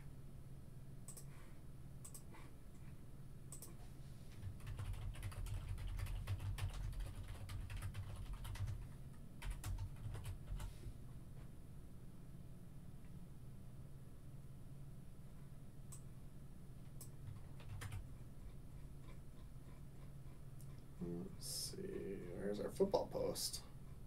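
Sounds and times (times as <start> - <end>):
keyboard typing: 3.5 - 3.8, 4.4 - 10.7, 17.0 - 18.1.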